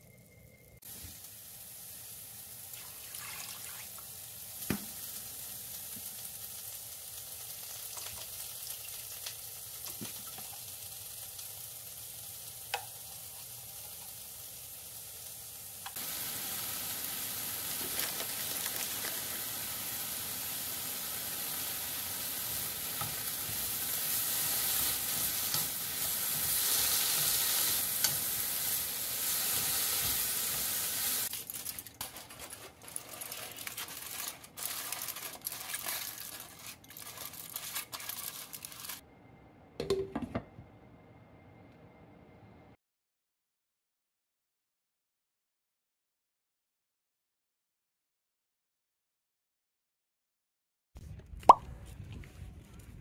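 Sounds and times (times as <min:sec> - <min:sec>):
meat sizzling in a pot: 0:00.8 - 0:39.0
vegetables stir-frying in pan: 0:00.8 - 0:39.0.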